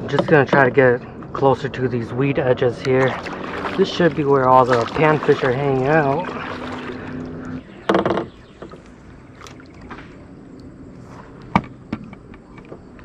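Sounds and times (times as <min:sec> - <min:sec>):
faint water: 0:00.0 - 0:11.4
handling knocks in a canoe: 0:07.8 - 0:08.8.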